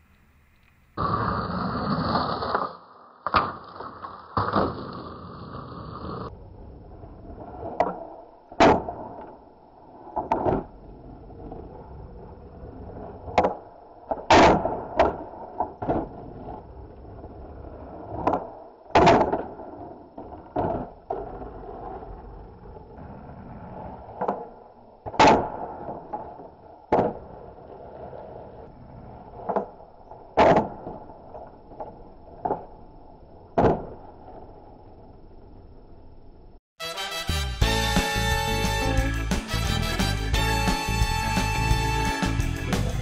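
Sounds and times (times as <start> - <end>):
skateboard wheels rolling on asphalt: 0.0 - 36.6, 37.7 - 43.0
skateboard clacking and landing: 1.0 - 6.3, 7.6 - 9.4, 10.1 - 10.8, 13.2 - 16.6, 18.0 - 22.0, 24.0 - 28.1, 29.3 - 32.8, 33.5 - 34.4.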